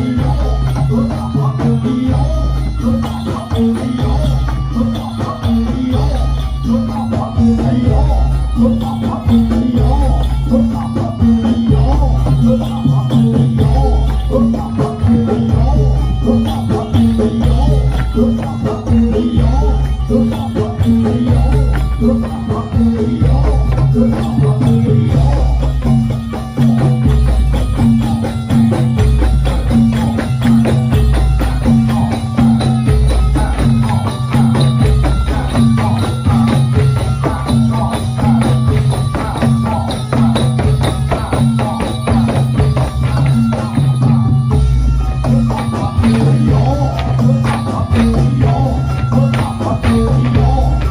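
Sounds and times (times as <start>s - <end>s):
folk dance music: 0.0s - 50.9s
jingling percussion: 0.0s - 50.9s
deep drum beat: 46.0s - 50.9s.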